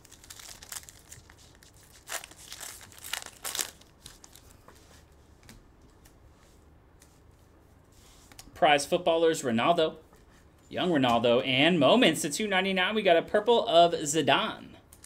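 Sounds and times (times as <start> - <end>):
foil wrapper crinkling: 0.0 - 4.6.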